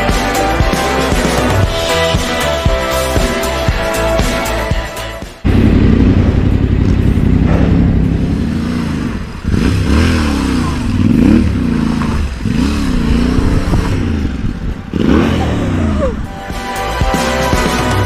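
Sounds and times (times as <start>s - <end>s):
motorcycle engine revving: 5.4s - 18.0s.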